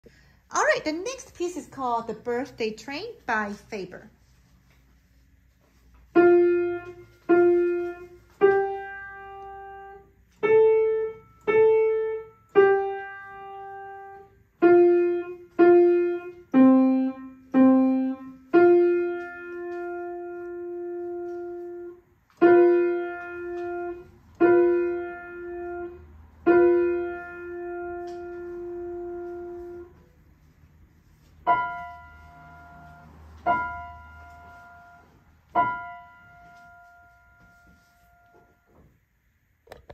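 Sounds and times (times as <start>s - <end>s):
grand piano melody: 6.1s - 30.1s, 31.3s - 38.7s.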